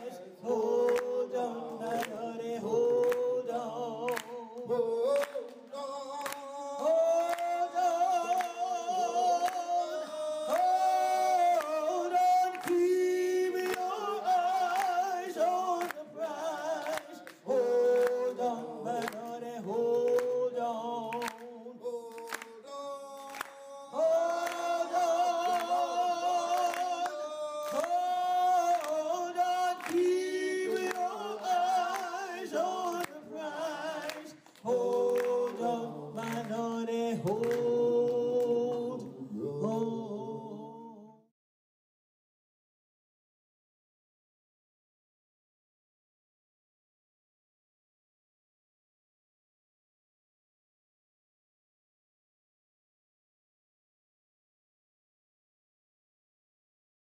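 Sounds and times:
unaccompanied singing with vibrato: 0.0 - 41.3.

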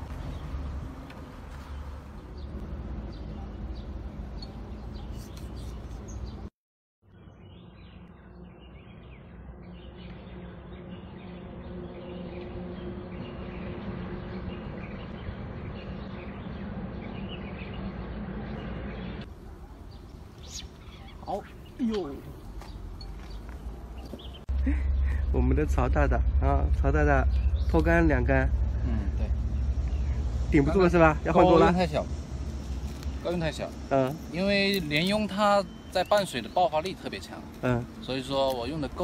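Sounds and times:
birds chirping: 0.0 - 39.0
low outdoor rumble: 7.8 - 35.6.

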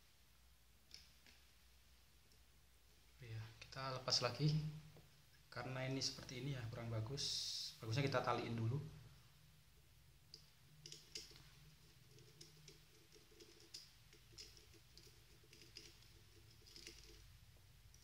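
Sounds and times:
small clicks and taps: 10.3 - 11.5.

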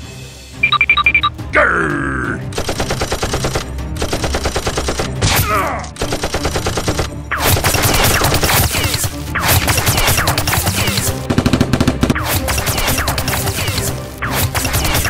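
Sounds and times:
automatic gunfire sound effects: 2.5 - 5.4, 6.0 - 15.0.

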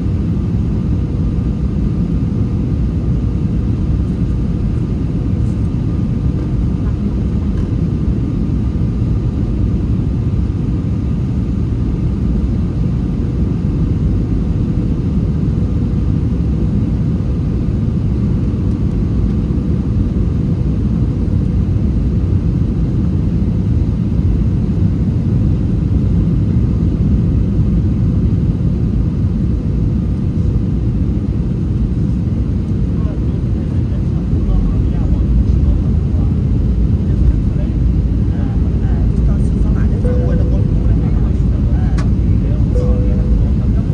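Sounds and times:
airliner cabin rumble: 0.0 - 43.9
faint steady tone: 40.0 - 43.9.

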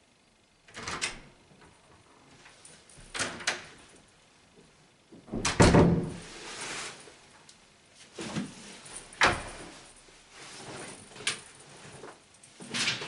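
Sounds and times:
door shutting with thud: 5.3 - 6.3.

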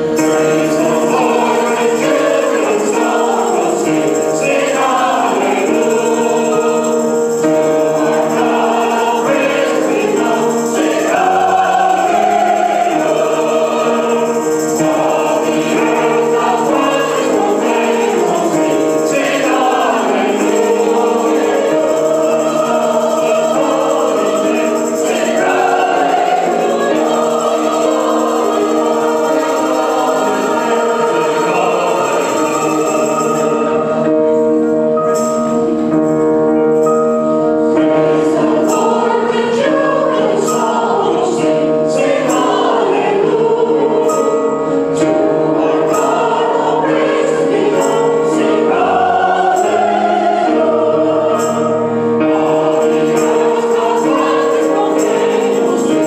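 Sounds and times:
choir singing a hymn: 0.0 - 56.0.

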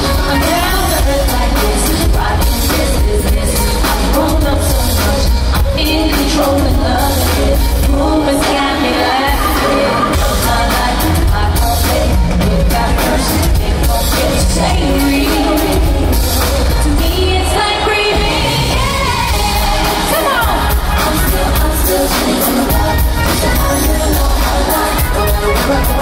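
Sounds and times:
loud band with heavy bass: 0.0 - 26.0
woman singing lead: 0.0 - 26.0.

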